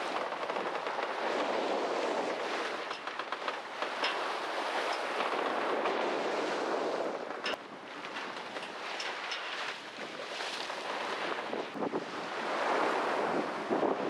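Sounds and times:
rush of water: 0.0 - 14.0
wind: 0.0 - 14.0
short clicks from boat: 8.5 - 9.8.

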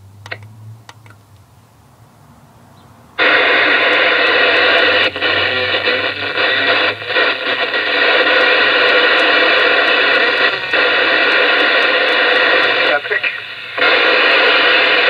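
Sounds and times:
radio static hiss: 3.2 - 15.0.

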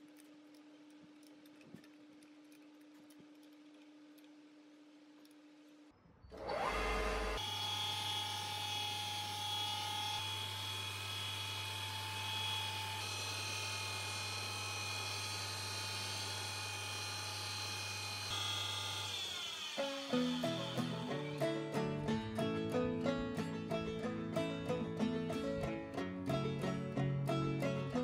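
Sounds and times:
lathe motor whining: 6.3 - 21.9.

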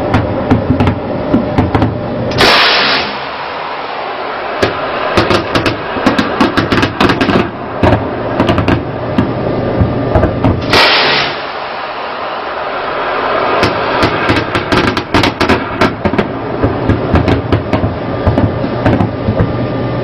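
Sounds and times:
wind and sea noise: 0.0 - 20.0
short loud noise blasts: 2.3 - 9.7, 10.6 - 18.1
deck gun firing rapid shots: 4.6 - 8.9, 13.6 - 19.0.

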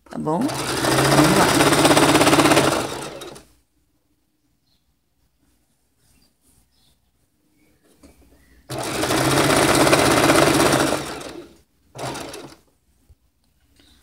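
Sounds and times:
electric sewing machine running: 0.4 - 3.4, 8.7 - 12.6.

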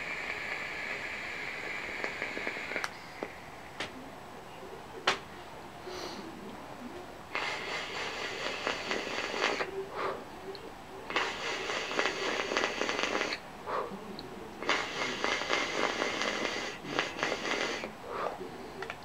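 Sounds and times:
e-cigarette draw hissing: 0.0 - 3.4, 7.4 - 10.2, 11.1 - 13.4, 14.6 - 18.4.

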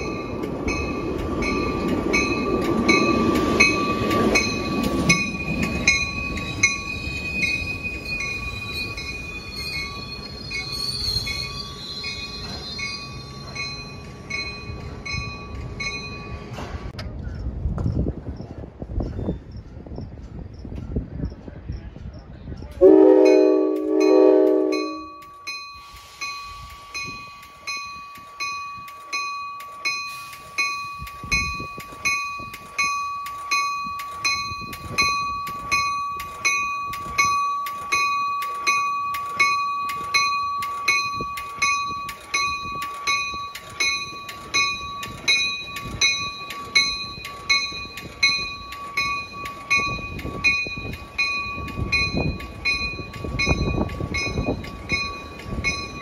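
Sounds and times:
locomotive bell ringing: 0.0 - 16.8, 22.8 - 56.0
moving train rumbling: 0.0 - 56.0
train horn blasts: 22.8 - 25.2.

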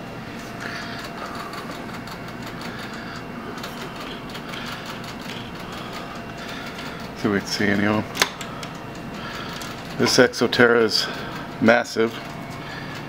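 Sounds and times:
steady background noise: 0.0 - 13.0
person breathing heavily: 0.5 - 7.2, 8.5 - 9.9, 12.4 - 13.0.

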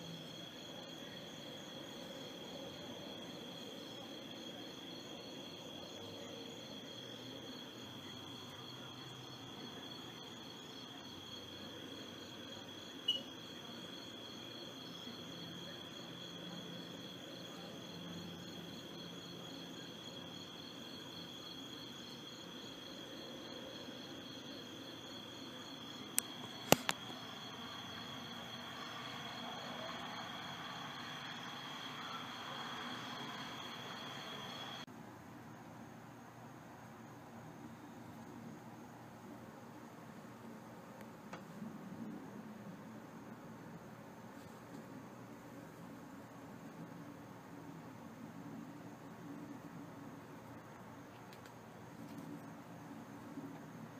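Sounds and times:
crickets trilling: 0.0 - 34.9
sharp clicks: 26.2 - 27.0.

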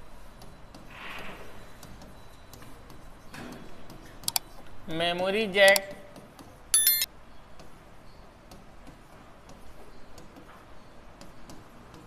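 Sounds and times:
bright electronic ding: 6.8 - 7.1.

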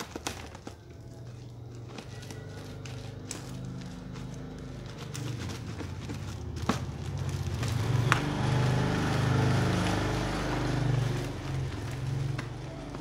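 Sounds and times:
vehicle engine passing: 2.7 - 13.0.

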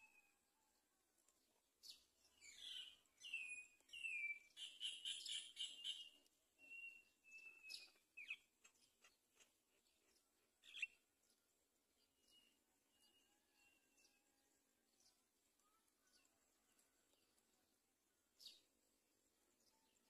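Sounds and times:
bird chirps and whistles: 2.6 - 8.4.

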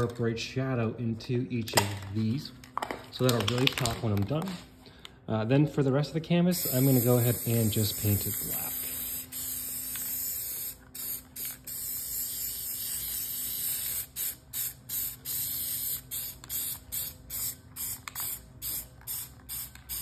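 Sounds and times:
spray paint can hissing: 6.6 - 20.0.

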